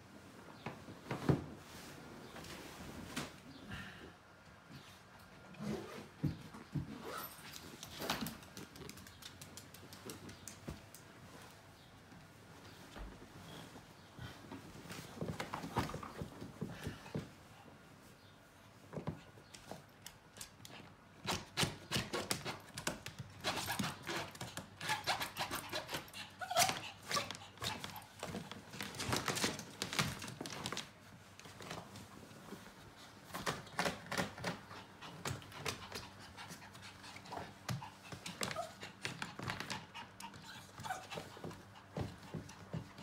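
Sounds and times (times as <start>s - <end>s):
dog panting rapidly: 34.6s - 43.0s.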